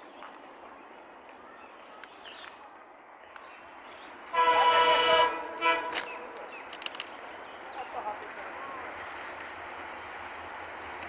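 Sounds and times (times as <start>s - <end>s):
locomotive air horn: 4.2s - 6.5s.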